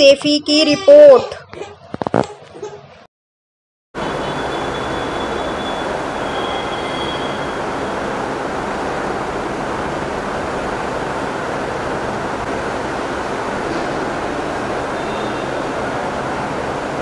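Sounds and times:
railway station rumble: 0:04.0 - 0:17.0
faint thin high squeal: 0:04.3 - 0:07.8.

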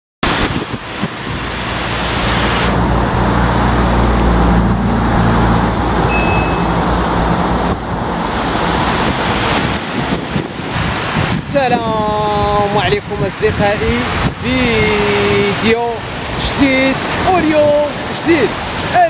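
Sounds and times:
floodwater rushing: 0:00.2 - 0:19.0
road traffic noise: 0:00.2 - 0:19.0
vehicle engine humming: 0:00.7 - 0:11.1.

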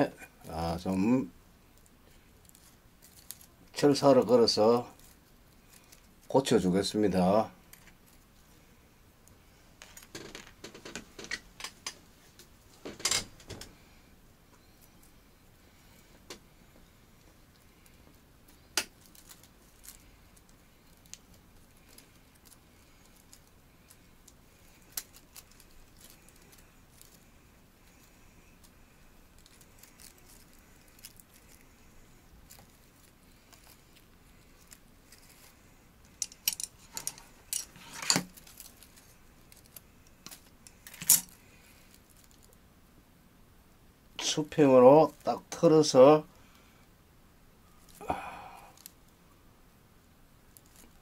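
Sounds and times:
wire and tools clicking: 0:17.2 - 0:27.2, 0:32.5 - 0:41.4.

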